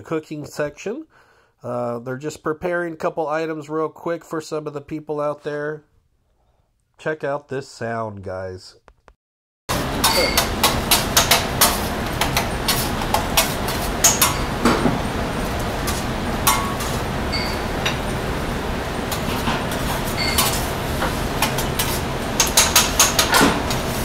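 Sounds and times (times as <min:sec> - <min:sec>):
metal spatula scraping on griddle: 0:19.1 - 0:24.0.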